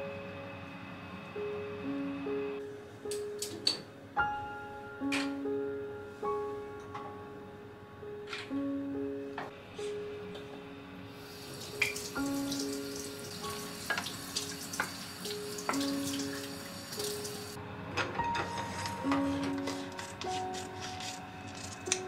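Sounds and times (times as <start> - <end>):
gentle background music: 0.0 - 22.0
faucet running into steel sink: 11.5 - 17.6.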